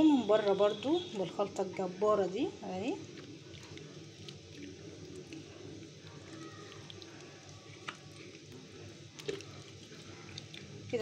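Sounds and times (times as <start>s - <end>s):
wet squishing of hands rubbing: 6.3s - 8.5s.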